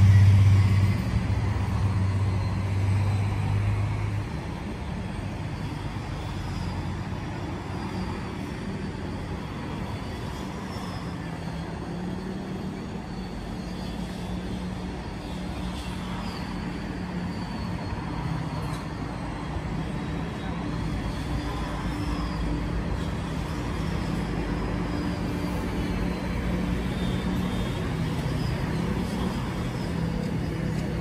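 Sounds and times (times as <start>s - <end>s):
faint high wavering squeals: 0.0s - 31.0s
train wheels rumbling on rail: 0.0s - 31.0s.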